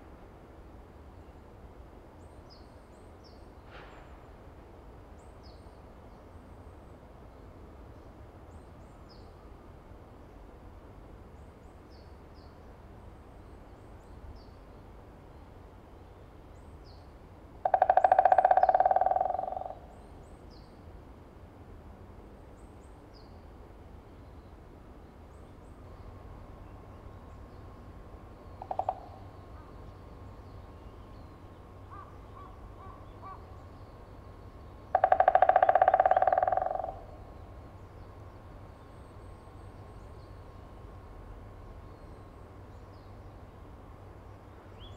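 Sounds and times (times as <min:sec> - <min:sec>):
woodpecker drumming: 0:17.6 - 0:19.9, 0:28.6 - 0:29.3, 0:34.9 - 0:37.2.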